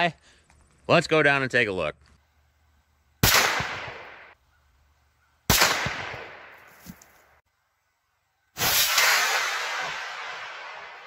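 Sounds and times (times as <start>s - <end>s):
rifle shots: 3.2s - 4.4s, 5.5s - 6.7s.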